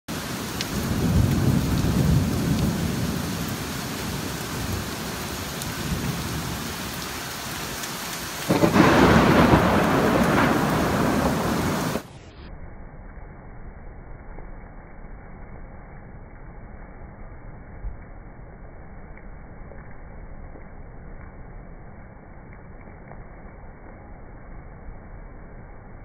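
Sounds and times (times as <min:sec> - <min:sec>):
thunder rumbling: 0:00.1 - 0:07.3, 0:08.4 - 0:22.5
heavy rain: 0:00.1 - 0:12.5
thunder clap: 0:08.5 - 0:12.2.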